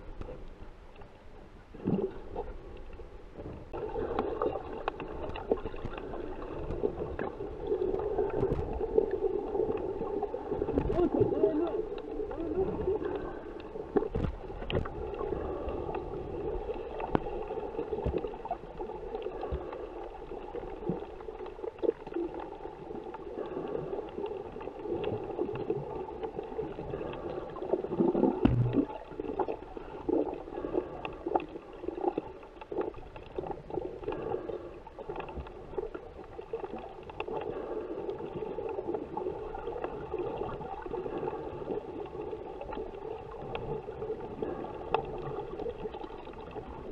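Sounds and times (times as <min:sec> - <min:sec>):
underwater low hum: 0:00.0 - 0:46.9
clicks and knocks: 0:28.4 - 0:28.8.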